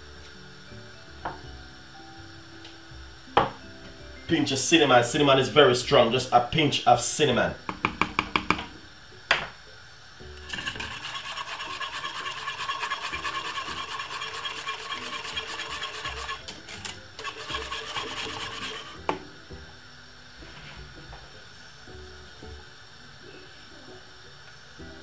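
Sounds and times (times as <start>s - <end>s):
whisk scraping a metal saucepan: 10.4s - 19.1s.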